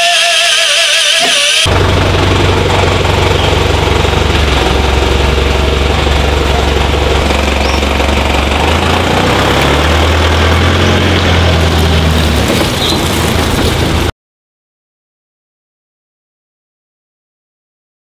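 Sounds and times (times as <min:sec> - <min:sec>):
vehicle engine idling: 0:01.3 - 0:14.1.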